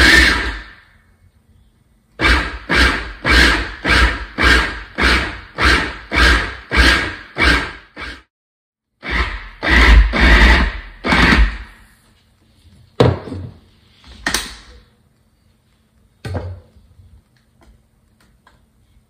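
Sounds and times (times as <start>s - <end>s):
food processor pulsing: 9.0s - 11.6s.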